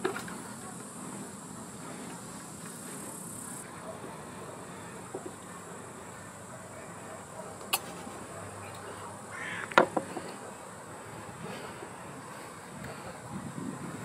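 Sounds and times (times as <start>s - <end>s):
outdoor background noise: 0.0s - 14.0s.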